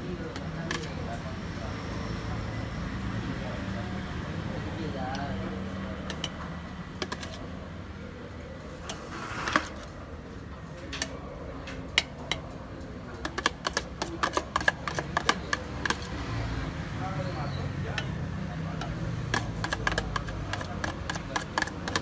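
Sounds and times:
metal spoon clinking on pan: 6.1 - 6.4
spoon scraping: 7.0 - 7.4, 13.2 - 16.3, 17.5 - 22.0.

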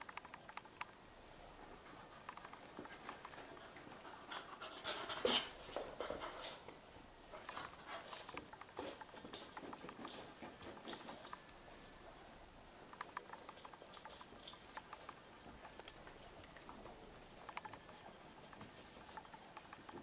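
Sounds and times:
dogs panting: 1.5 - 11.6
dogs scuffling: 7.3 - 12.0.

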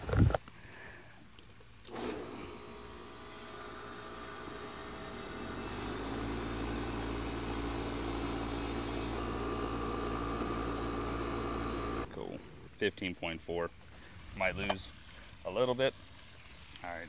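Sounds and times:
air conditioner compressor humming: 1.9 - 12.1.

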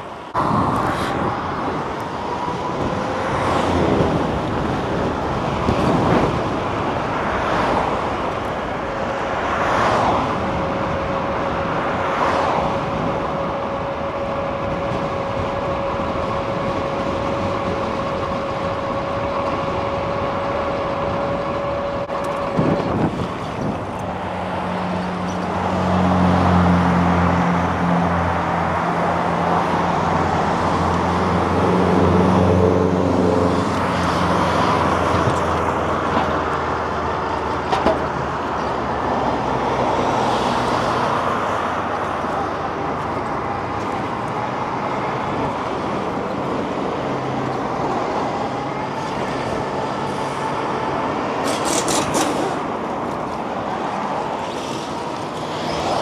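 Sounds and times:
vehicles passing: 0.0 - 56.0.

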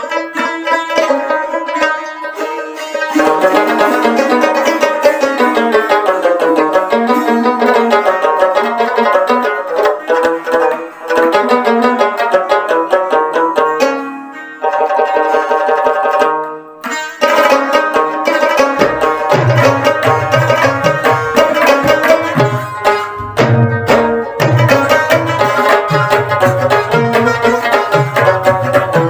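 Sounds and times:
plucked string instrument: 0.0 - 29.0.

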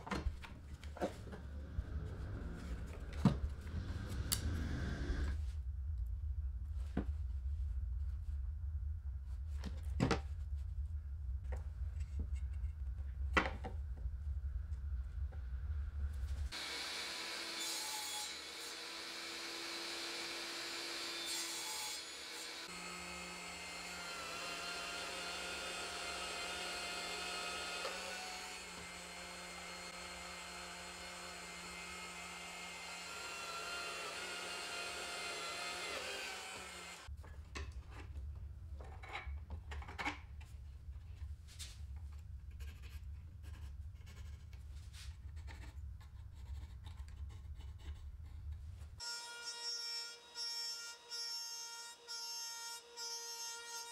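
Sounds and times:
low hum: 0.1 - 16.5
table saw cutting wood: 1.0 - 5.4, 16.5 - 37.1.

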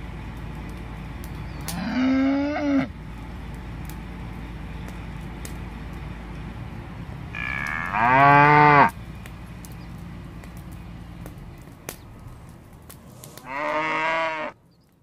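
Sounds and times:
cattle mooing: 1.7 - 2.9, 7.3 - 8.9, 13.2 - 14.6.

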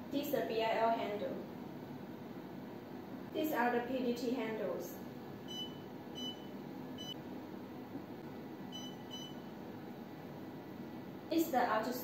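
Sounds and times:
touchscreen beeping: 5.5 - 7.2, 8.7 - 9.4.

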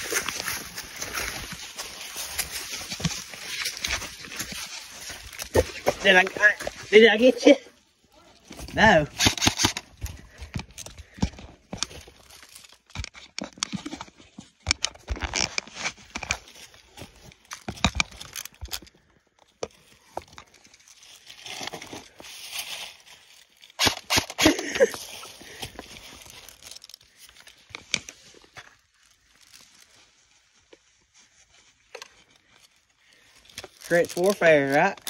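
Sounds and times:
dry leaves crunching: 0.0 - 10.4, 11.0 - 12.9, 19.8 - 35.0.

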